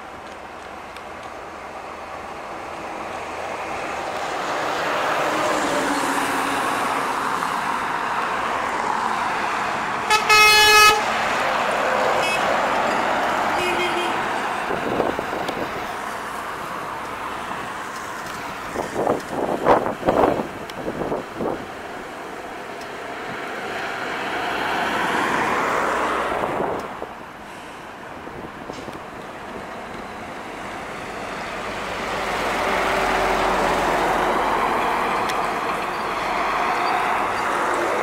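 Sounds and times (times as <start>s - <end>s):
truck horn blast: 10.1s - 11.1s, 12.2s - 12.5s, 13.6s - 14.2s
truck driving past: 30.8s - 38.0s.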